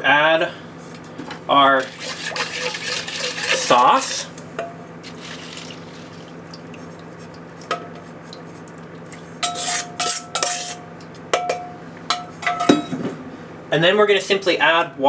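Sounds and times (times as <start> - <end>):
spatula scraping a metal bowl: 1.8 - 4.3, 9.4 - 10.8
metal bowl ringing: 4.6 - 4.9, 9.4 - 12.9.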